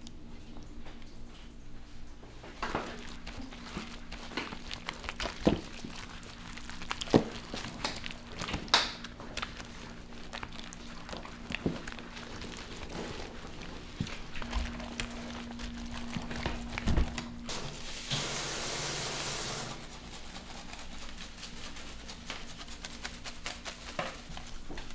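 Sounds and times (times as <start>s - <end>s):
steady low hum: 0.0s - 18.1s
rustling: 2.6s - 18.0s, 19.5s - 24.9s.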